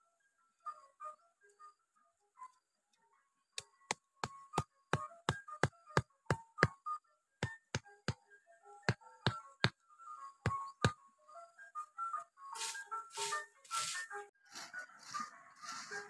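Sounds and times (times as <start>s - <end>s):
background music: 0.0s - 16.0s.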